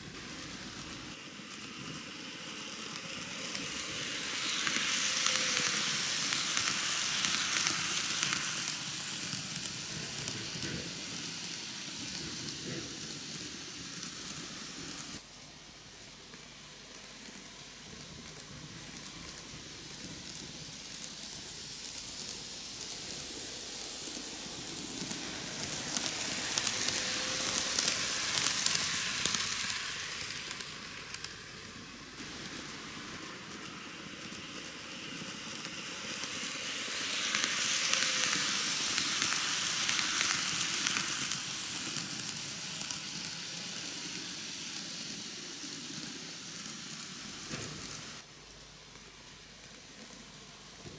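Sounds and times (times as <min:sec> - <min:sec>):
faint motor whine: 0:00.0 - 0:50.9
model train wheels rattling: 0:18.2 - 0:47.9.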